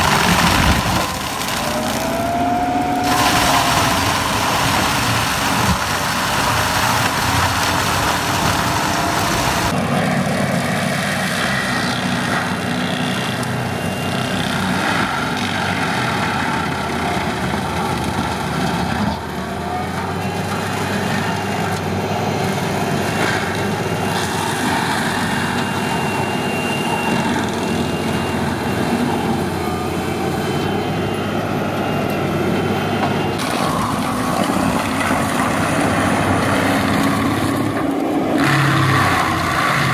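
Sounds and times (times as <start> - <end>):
diesel engine under load: 0.0 - 39.9
mulcher drum grinding brush: 3.0 - 9.7.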